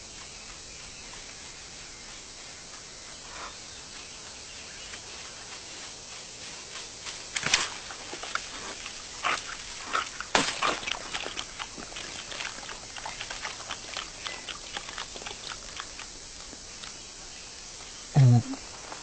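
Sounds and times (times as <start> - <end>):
cartoon crunching: 8.3 - 16.9.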